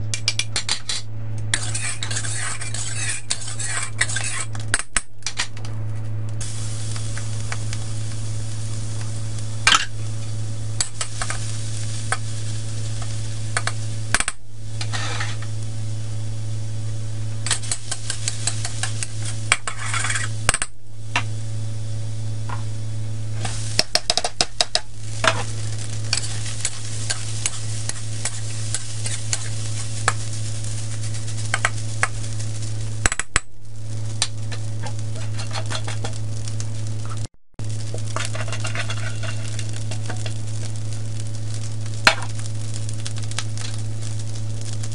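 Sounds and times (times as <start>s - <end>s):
steady low hum: 0.0s - 44.9s
metal spatula scraping a wok: 0.6s - 4.6s, 14.8s - 15.5s, 17.5s - 20.6s, 25.2s - 32.1s, 34.8s - 36.2s, 38.0s - 40.4s
food sizzling in hot oil: 1.5s - 4.9s, 6.4s - 44.9s.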